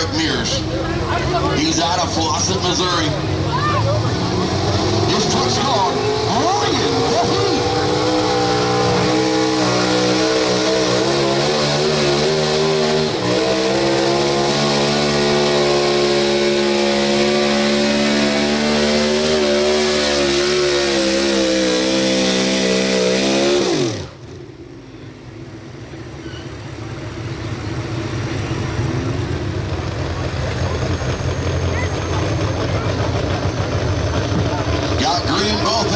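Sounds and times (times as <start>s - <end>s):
truck engine revving high: 0.0s - 24.7s, 25.5s - 35.9s.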